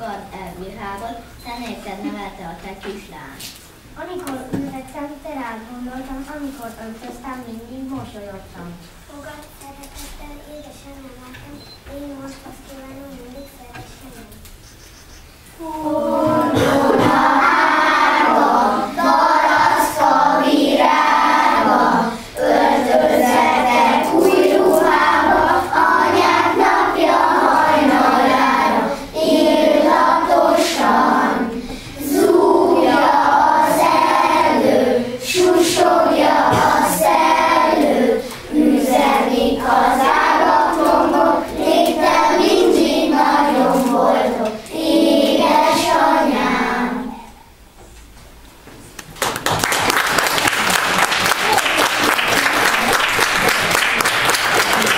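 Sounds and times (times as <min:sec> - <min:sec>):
children singing in chorus: 0:15.6 - 0:47.2.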